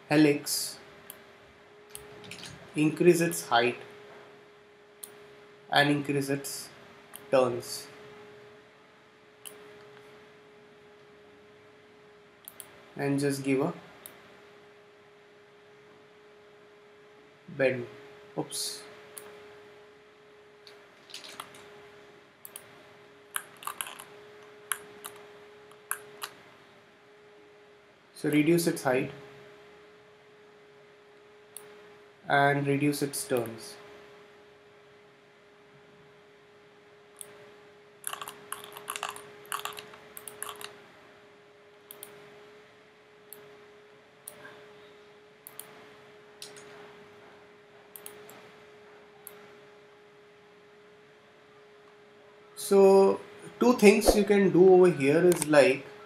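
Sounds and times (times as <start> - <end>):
faint electrical hum: 0.0 - 56.0
computer mouse clicking: 12.4 - 12.7, 22.4 - 22.7, 23.3 - 26.4, 38.0 - 40.8, 45.4 - 45.7, 47.9 - 48.4.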